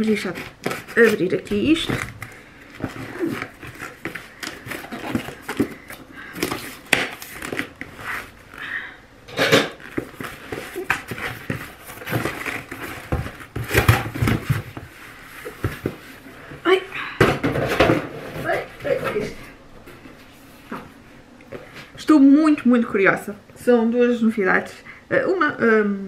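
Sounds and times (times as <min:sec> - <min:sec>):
cardboard rustling and scraping: 0:00.0 - 0:08.6, 0:09.8 - 0:16.5.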